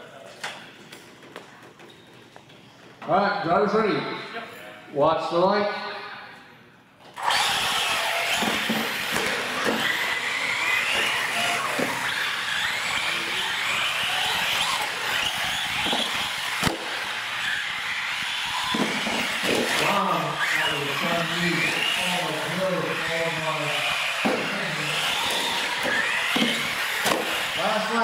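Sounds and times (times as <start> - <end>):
model truck motors whining: 7.0 - 28.0.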